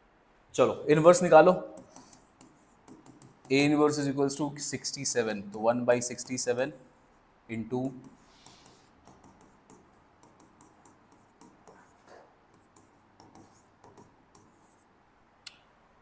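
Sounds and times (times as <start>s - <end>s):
pen scratching while writing: 1.8s - 3.8s, 8.0s - 14.9s.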